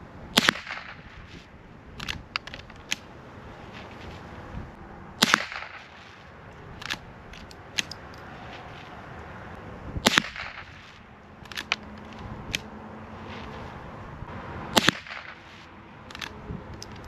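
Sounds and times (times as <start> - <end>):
rifle shots: 0.4 - 1.2, 5.2 - 6.2, 10.0 - 11.8, 14.7 - 15.7
rifle lever clicks: 2.0 - 3.0, 6.8 - 8.2, 11.4 - 12.7, 16.1 - 17.0.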